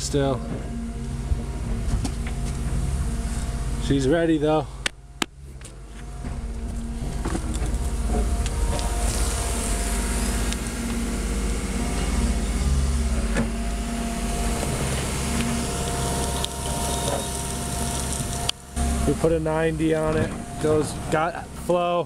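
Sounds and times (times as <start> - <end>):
diesel engine running: 0.0 - 22.0
steady whine: 0.0 - 22.0.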